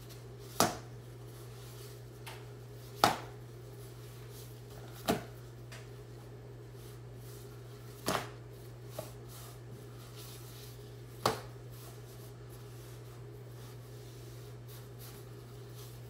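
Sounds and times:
steady low hum: 0.0s - 16.0s
dough slapped on stone: 0.6s - 0.9s, 3.0s - 3.3s, 8.0s - 8.4s, 11.2s - 11.5s.

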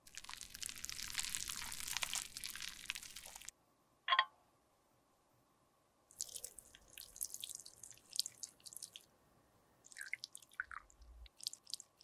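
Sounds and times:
thick liquid dripping with ticks: 0.0s - 3.5s, 6.1s - 9.1s, 9.8s - 12.0s.

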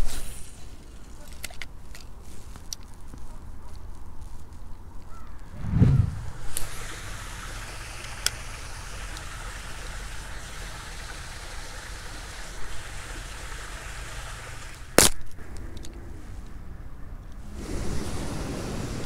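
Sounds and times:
outdoor background noise: 0.0s - 19.0s.

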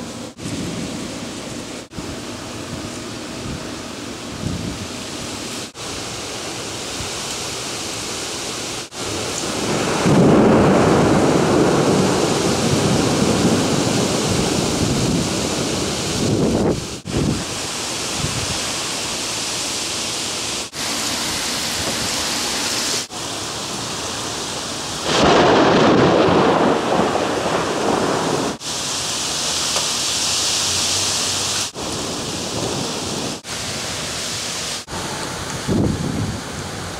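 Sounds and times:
rain hiss: 0.0s - 36.9s
thunder rumbling: 8.9s - 18.7s, 24.9s - 28.7s, 31.7s - 34.2s.

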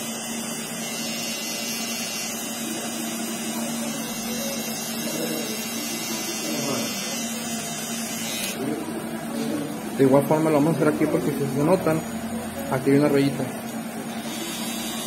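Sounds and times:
hair trimmer humming: 0.0s - 8.9s, 14.1s - 15.0s.

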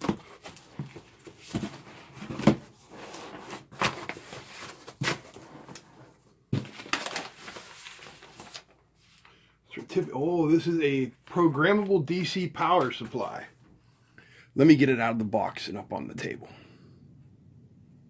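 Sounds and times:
cardboard rustling and scraping: 0.0s - 9.2s
paper sheet rustling: 3.0s - 9.3s.

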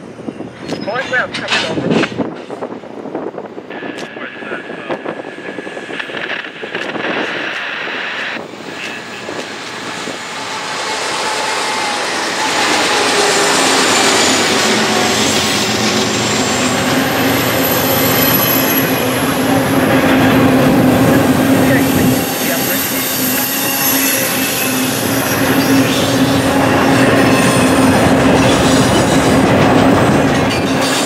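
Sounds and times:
diesel locomotives passing: 0.0s - 31.0s
steel wheels rumbling: 4.6s - 31.0s
high wheel squeal: 10.3s - 19.3s, 22.2s - 29.2s.

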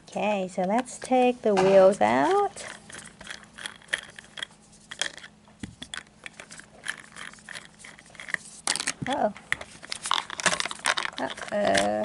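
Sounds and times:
plastic toy parts clicking: 9.9s - 12.0s.

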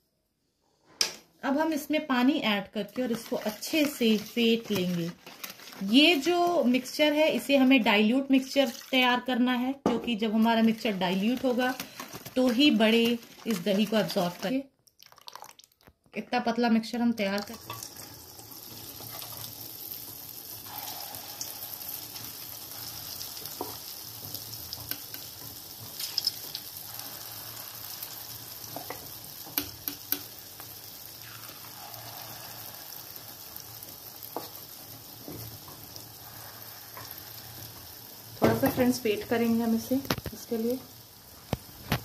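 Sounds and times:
food deep-frying in oil: 1.8s - 15.9s, 17.2s - 42.0s
sharp ticks of frying: 17.4s - 42.0s.

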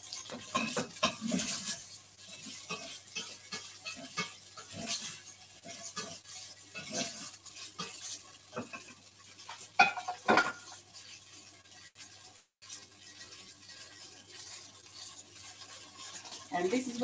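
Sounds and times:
spoon scraping a pan: 0.0s - 17.0s
tofu sizzling in a pan: 0.0s - 17.0s
spoon clanking against pan: 0.1s - 10.8s.

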